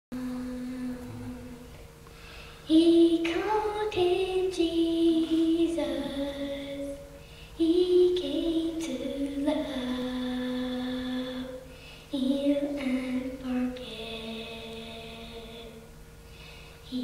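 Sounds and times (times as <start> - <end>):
girl singing into a microphone: 0.2 - 1.8, 2.6 - 15.9.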